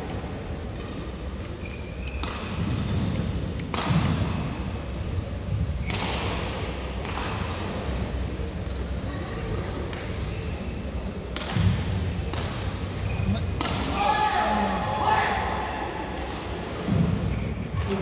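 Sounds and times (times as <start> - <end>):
racket hitting shuttlecock: 0.9 - 4.5, 5.8 - 7.8, 11.3 - 12.9, 13.6 - 14.0.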